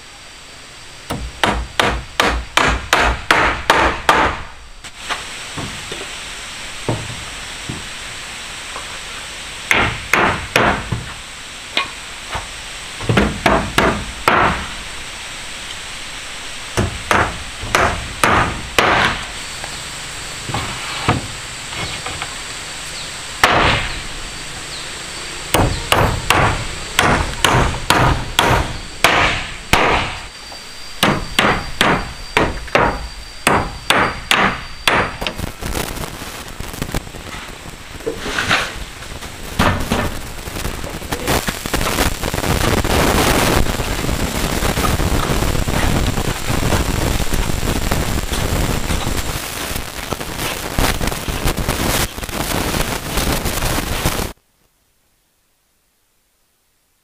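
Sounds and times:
hammer blows: 0:25.5 - 0:35.4.

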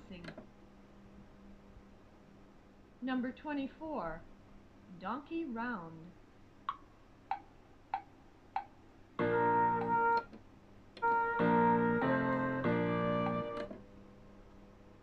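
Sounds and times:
count-in clicks: 0:06.7 - 0:08.7, 0:09.7 - 0:10.4
piano notes and chords: 0:09.2 - 0:10.2, 0:11.0 - 0:13.7.

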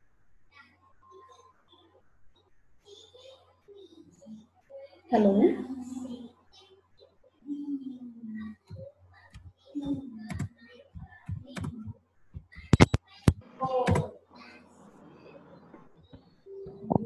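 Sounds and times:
indistinct voice: 0:07.4 - 0:17.0.

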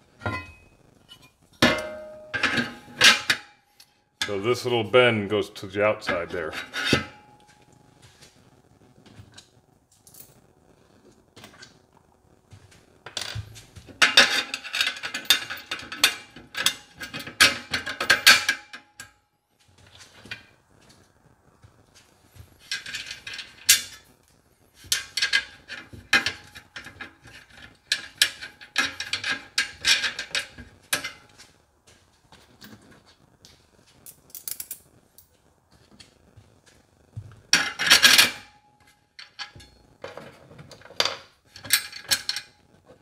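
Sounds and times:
metal hardware clicking and clattering: 0:00.2 - 0:04.6, 0:13.1 - 0:19.2, 0:22.6 - 0:24.1, 0:24.8 - 0:31.5, 0:34.1 - 0:34.8, 0:37.5 - 0:42.6.

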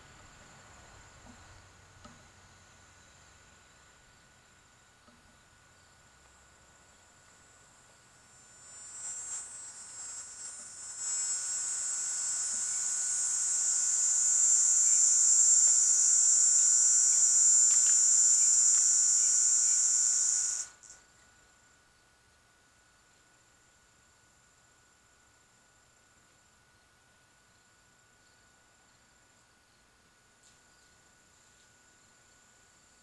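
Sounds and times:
cicada buzzing: 0:00.1 - 0:21.0.

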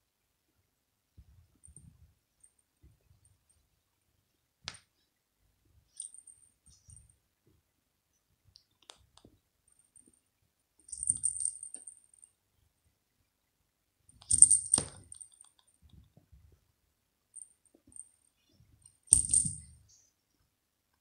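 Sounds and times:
bell in toy ball jingling: 0:14.3 - 0:15.0, 0:19.1 - 0:19.7.

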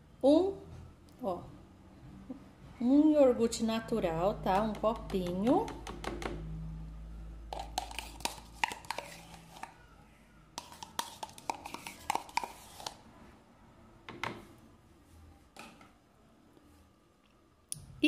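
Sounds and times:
spoon scraping and tapping tub: 0:04.5 - 0:06.4, 0:07.5 - 0:09.8, 0:10.6 - 0:13.0.

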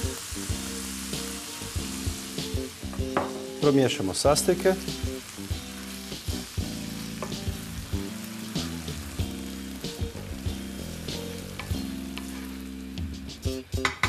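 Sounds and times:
food sizzling in a frying pan: 0:00.0 - 0:14.0.

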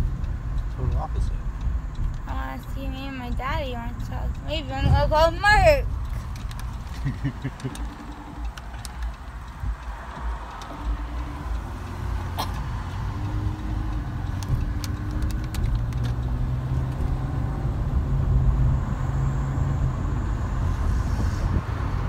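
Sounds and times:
faint ticks: 0:00.0 - 0:17.2
car interior road rumble: 0:00.0 - 0:22.0.

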